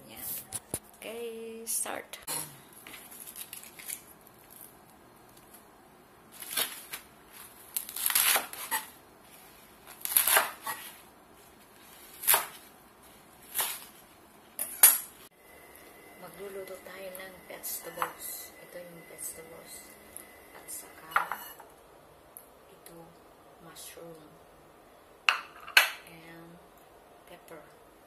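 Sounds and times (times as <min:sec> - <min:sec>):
knife slicing lettuce on wooden board: 0:09.9 - 0:11.0, 0:11.8 - 0:12.7, 0:13.4 - 0:14.0.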